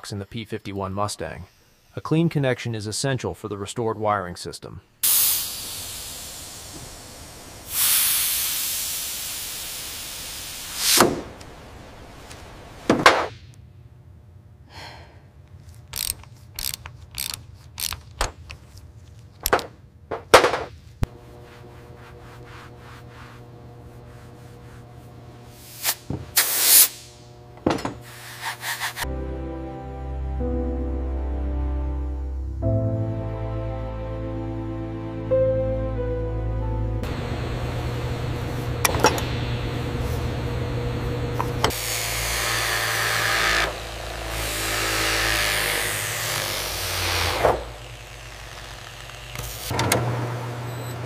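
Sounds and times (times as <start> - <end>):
air hissing: 5.0 - 11.4, 21.0 - 29.1
tool clicks and knocks: 19.4 - 20.8
low hum: 19.9 - 26.1, 36.5 - 42.3
tool scraping: 20.1 - 26.5, 27.6 - 29.1, 41.4 - 50.0.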